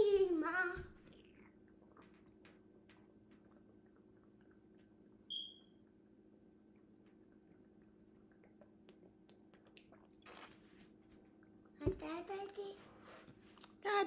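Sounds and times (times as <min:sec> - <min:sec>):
person gulping water: 0:01.1 - 0:05.2, 0:06.7 - 0:10.6.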